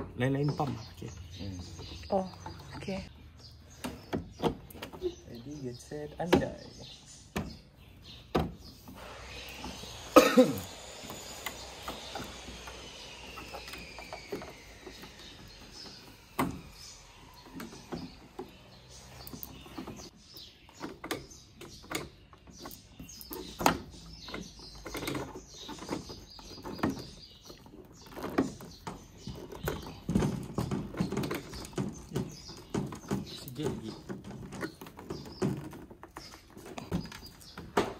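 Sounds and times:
plastic pipes clicking and knocking: 20.8s - 37.9s.

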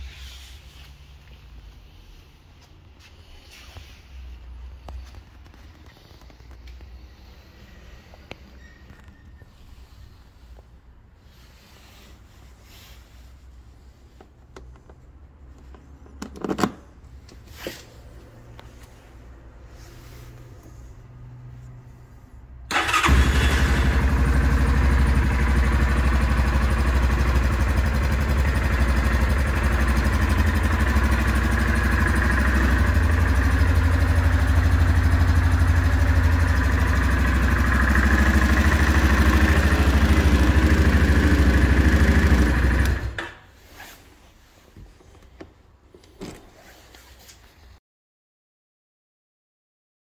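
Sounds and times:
atv engine starting and idling: 22.7s - 43.5s.

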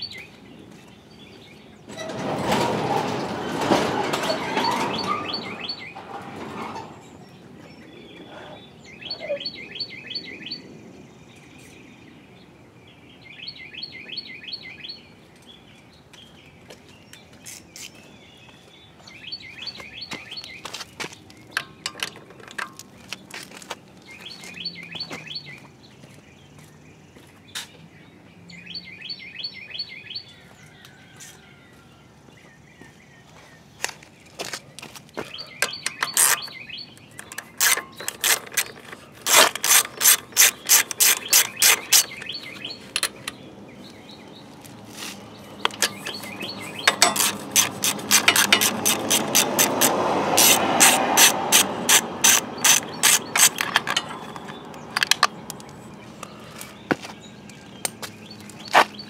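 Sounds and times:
socket ratchet clicking: 35.6s - 43.4s, 45.7s - 55.4s.

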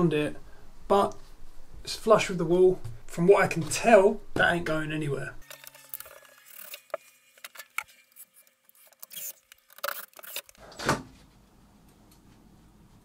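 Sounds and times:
tools and wood clicking: 5.4s - 10.6s.

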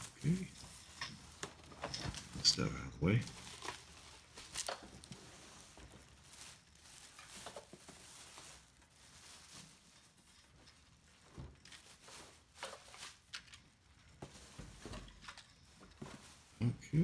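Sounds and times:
plastic wrapping crinkling: 0.0s - 17.0s
cardboard packaging handled: 3.2s - 16.6s.

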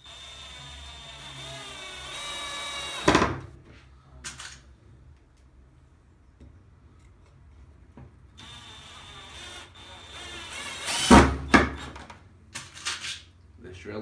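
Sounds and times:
cordless drill motor whining: 0.0s - 3.1s, 8.4s - 11.1s.

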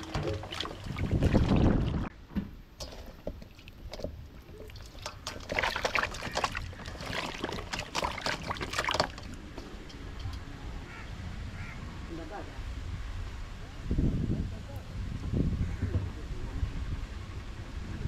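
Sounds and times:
water sloshing and splashing: 0.0s - 10.0s.

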